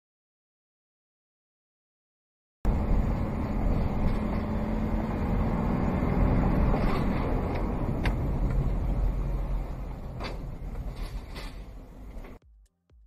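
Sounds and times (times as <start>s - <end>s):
vehicle engine and road noise: 2.7s - 12.6s.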